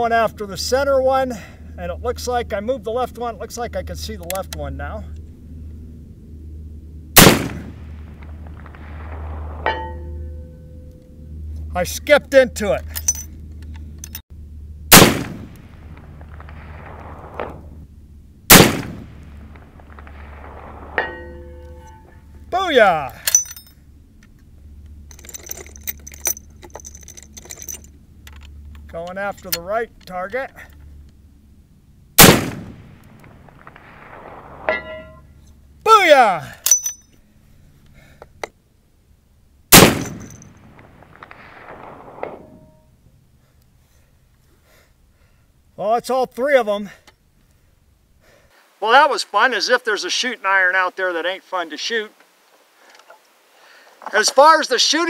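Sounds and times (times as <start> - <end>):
rifle shots echoing: 7.2 - 9.8, 14.9 - 17.8, 18.5 - 21.7, 32.2 - 35.0, 39.7 - 42.4
distant metal clang: 9.1 - 11.0, 20.9 - 22.5, 34.6 - 35.4
bullet clanging on steel target: 9.7 - 10.6, 12.9 - 13.3, 21.0 - 22.2, 23.2 - 23.8, 34.7 - 35.3, 36.6 - 37.2, 40.0 - 40.5.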